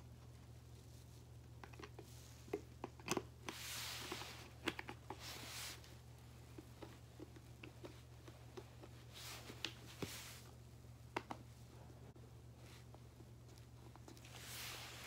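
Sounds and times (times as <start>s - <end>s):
low steady hum: 0.0s - 15.0s
soft hiss: 3.4s - 6.4s, 8.8s - 15.0s
faint clicks and soft taps: 11.0s - 11.6s.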